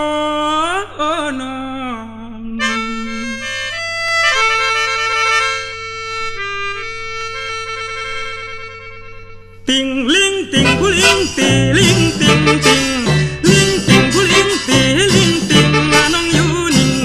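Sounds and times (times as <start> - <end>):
held drone note: 2.5 - 9.7, 10.6 - 17.0
reedy wind instrument melody: 2.6 - 9.6, 10.6 - 17.0.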